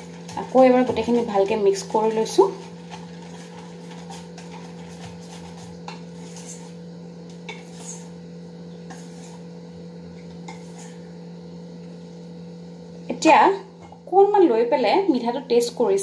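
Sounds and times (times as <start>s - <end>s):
whisk stirring batter: 0.0s - 11.2s
steady low hum: 0.0s - 16.0s.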